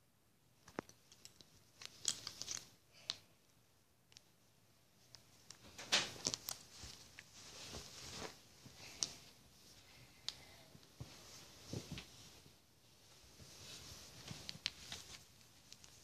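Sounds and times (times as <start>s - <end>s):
rustling of bedding: 4.9s - 16.0s.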